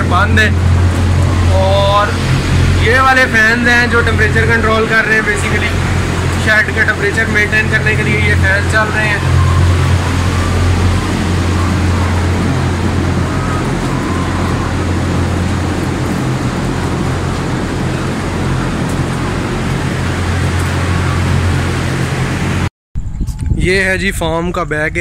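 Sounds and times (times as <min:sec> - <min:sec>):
fan motor hum: 0:00.0 - 0:23.9
rush of moving air: 0:00.5 - 0:06.5.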